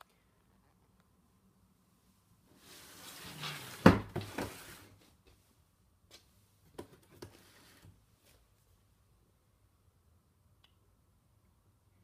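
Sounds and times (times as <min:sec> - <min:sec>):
rustling scrape: 0:02.6 - 0:05.0.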